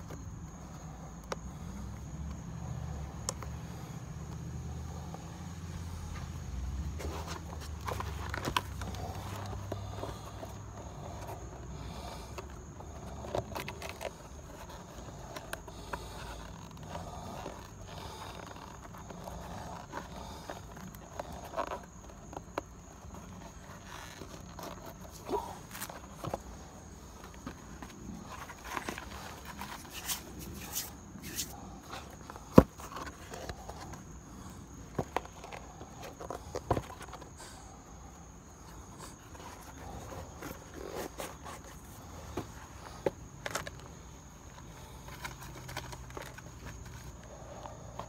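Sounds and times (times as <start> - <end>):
rubber sole crackling: 0.0 - 48.0
shoe scraping on concrete: 23.3 - 37.8.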